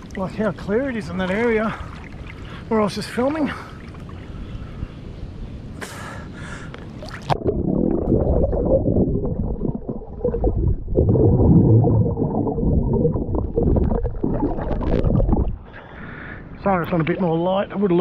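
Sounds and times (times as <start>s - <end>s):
muffled underwater rumbling and gurgling: 7.0s - 15.7s
water splashing on microphone: 7.0s - 15.7s.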